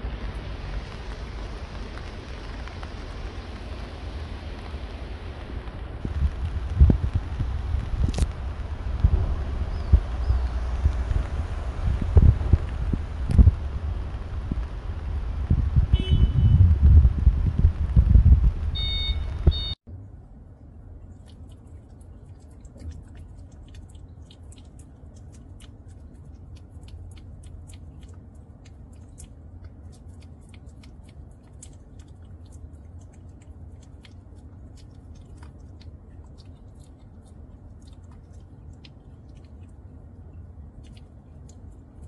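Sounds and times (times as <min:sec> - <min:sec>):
low steady hum: 0:00.0 - 0:42.0
beeping tones: 0:18.8 - 0:19.8
kitten chewing clicks: 0:21.0 - 0:42.0.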